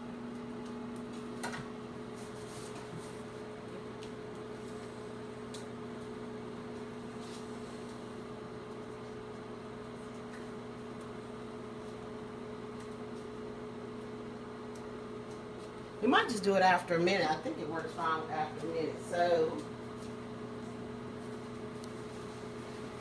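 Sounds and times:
fan noise: 0.0 - 23.0
microwave oven humming: 0.0 - 23.0.

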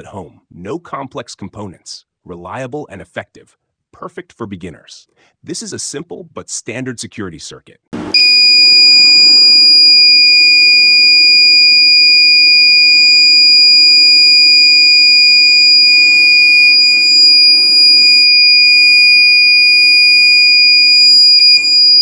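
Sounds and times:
high-pitched buzzer tone: 8.0 - 22.0.

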